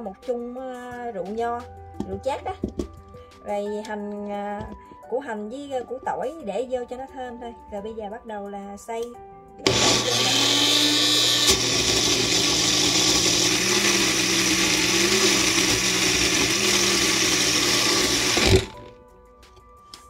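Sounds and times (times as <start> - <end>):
blender motor grinding: 9.6 - 18.9.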